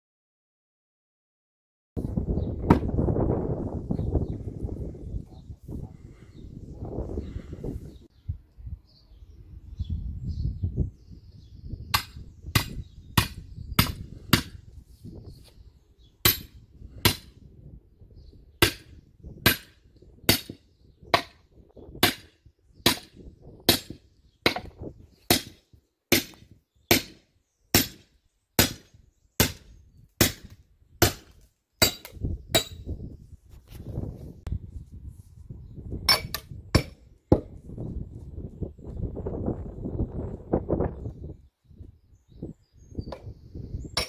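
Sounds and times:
sledgehammer striking steel wedge: 0:12.0 - 0:14.6, 0:16.2 - 0:17.3, 0:18.6 - 0:20.6, 0:22.0 - 0:22.3, 0:22.9 - 0:23.1, 0:23.7 - 0:24.7, 0:25.3 - 0:27.2, 0:27.8 - 0:29.6, 0:30.2 - 0:32.9, 0:36.1 - 0:37.5.

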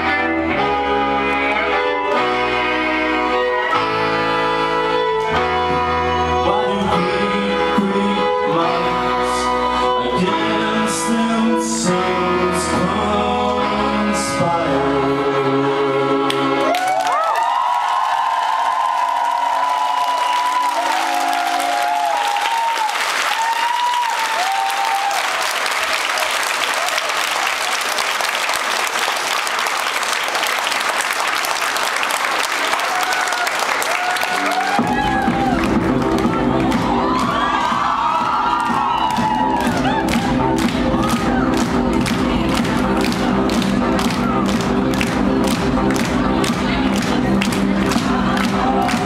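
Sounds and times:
electric bass guitar: 0:00.0 - 0:16.5
large audience applauding: 0:16.3 - 0:49.0.

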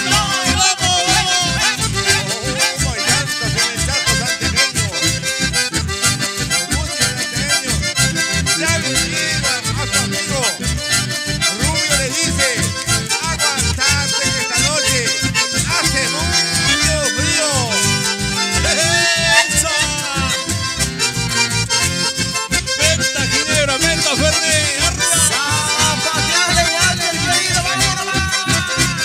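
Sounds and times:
accordion band playing: 0:00.0 - 0:29.0
pulsing bass beat: 0:00.0 - 0:29.0.

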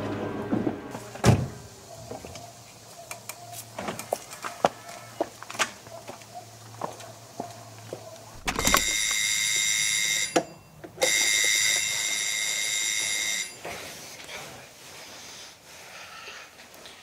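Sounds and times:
electric doorbell ringing: 0:08.4 - 0:13.6.

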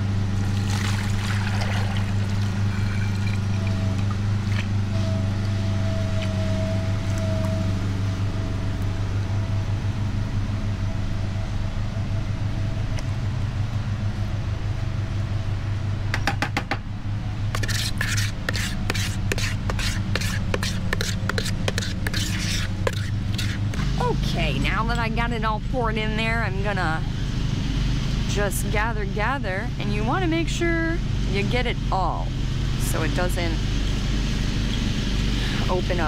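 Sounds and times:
low engine hum: 0:00.0 - 0:36.0
spatula scraping bucket: 0:17.6 - 0:23.8.

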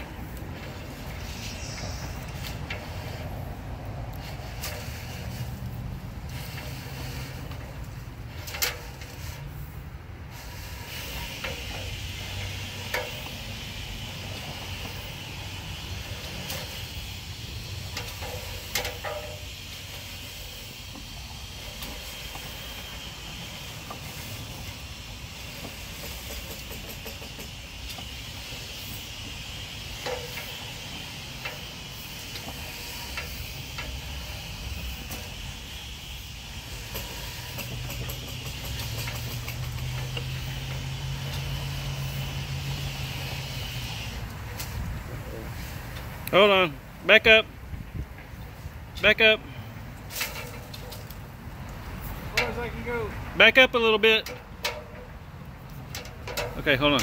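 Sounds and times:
steady hiss: 0:00.0 - 0:57.0
sharp clicks and knocks: 0:17.9 - 0:19.5, 0:25.5 - 0:28.2, 0:36.8 - 0:41.6, 0:54.1 - 0:57.0.

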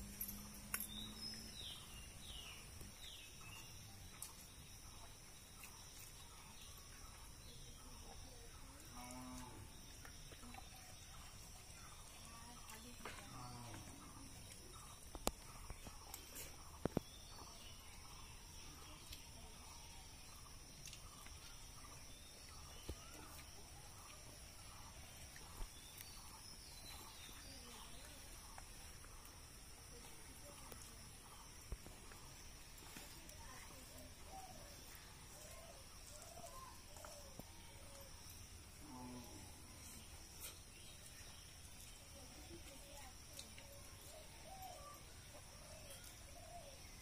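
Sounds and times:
crickets chirping: 0:00.0 - 0:47.0.

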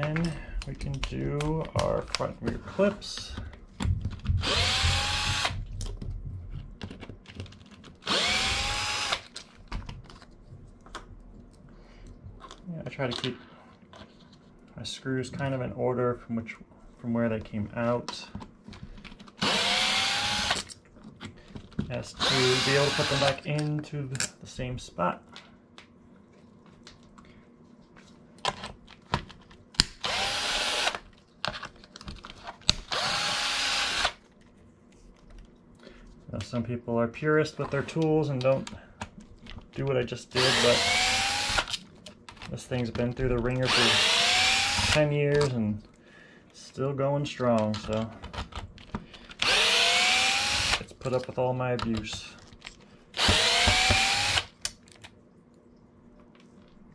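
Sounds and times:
electric screwdriver motor whine: 0:04.4 - 0:05.6, 0:08.1 - 0:09.2, 0:19.4 - 0:20.6, 0:30.0 - 0:31.0, 0:32.9 - 0:34.2, 0:40.4 - 0:41.7, 0:43.7 - 0:45.0, 0:49.4 - 0:50.8, 0:53.2 - 0:54.5.

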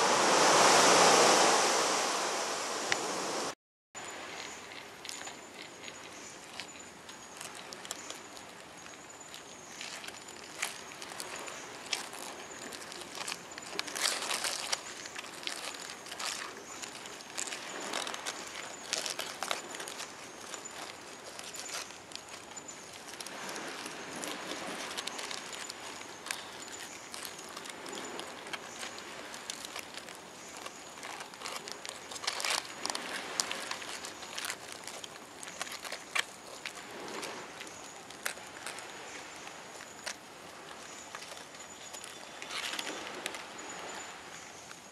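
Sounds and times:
dead leaves crackling: 0:04.0 - 0:44.7
crabs crawling over dry leaves: 0:04.0 - 0:44.9.

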